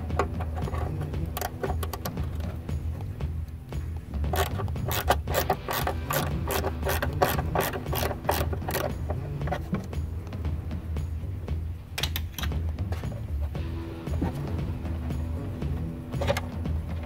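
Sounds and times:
ratchet wrench clicking: 0.0 - 3.0, 4.3 - 10.0.

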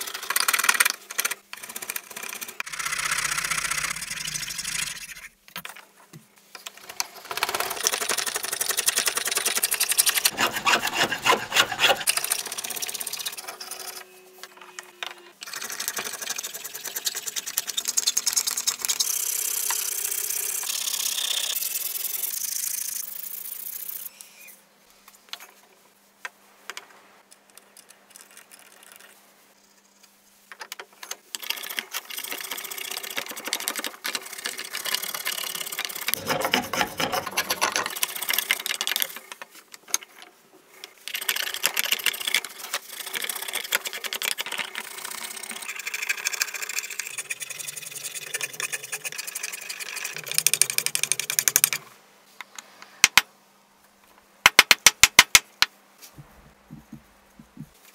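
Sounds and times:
hand tool scraping wood: 10.2 - 12.2, 36.2 - 37.9.

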